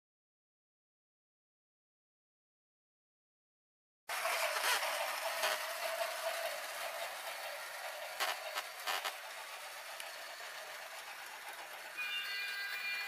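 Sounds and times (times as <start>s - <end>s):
toy train motor running: 4.1s - 13.0s.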